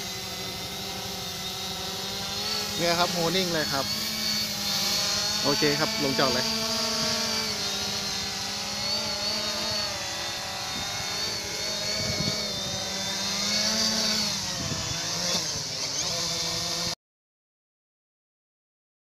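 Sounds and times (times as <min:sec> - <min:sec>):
quadcopter motors whirring: 0:00.0 - 0:17.0.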